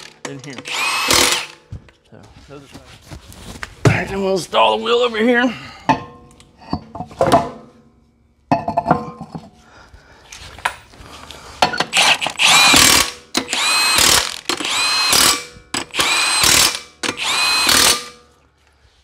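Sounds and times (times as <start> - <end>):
impact wrench whining and hammering: 0.0 - 1.9, 11.6 - 18.5.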